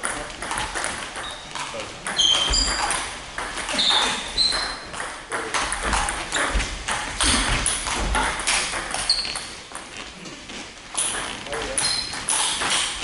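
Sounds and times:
table tennis balls clicking: 0:00.0 - 0:10.2, 0:10.9 - 0:13.0
short high squeaks: 0:02.1 - 0:03.0, 0:03.7 - 0:04.9, 0:09.0 - 0:09.5, 0:11.8 - 0:12.6.

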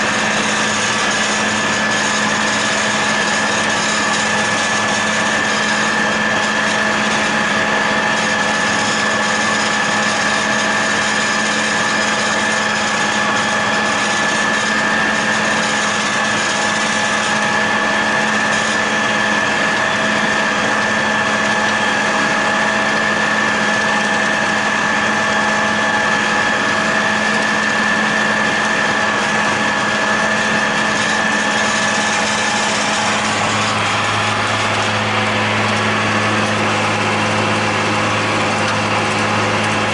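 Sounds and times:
steady high whine: 0:00.0 - 0:39.9
tractor diesel engine drone: 0:00.0 - 0:39.9
deeper hum: 0:11.9 - 0:39.9.

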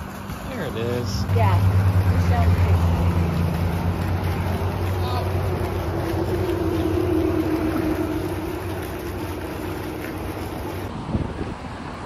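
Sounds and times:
motor humming: 0:01.4 - 0:10.9.

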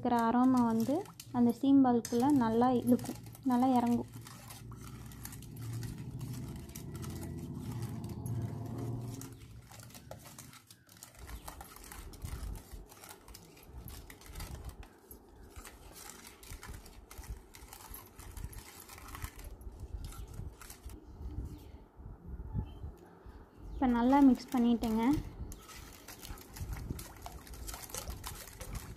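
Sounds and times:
low hum: 0:01.3 - 0:10.6.

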